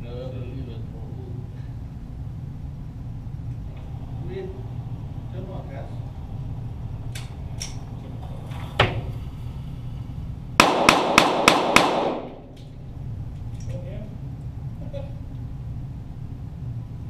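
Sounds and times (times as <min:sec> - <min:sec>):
gunshot echoes: 0:10.6 - 0:12.5
pistol shots: 0:10.6 - 0:12.5.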